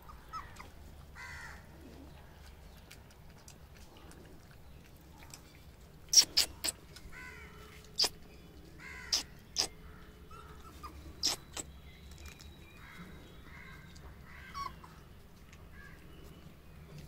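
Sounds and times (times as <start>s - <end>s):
high-pitched animal cries: 6.1s - 7.4s, 8.9s - 9.7s, 10.3s - 11.7s.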